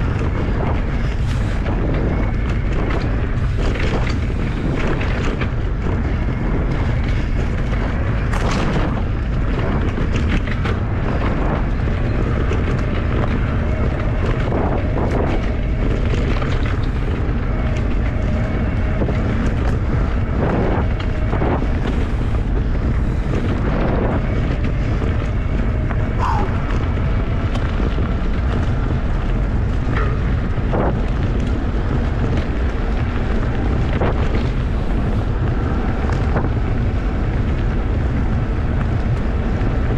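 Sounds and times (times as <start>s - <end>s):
bike rattling over bumps: 0.0s - 39.9s
wind buffeting microphone: 0.0s - 39.9s.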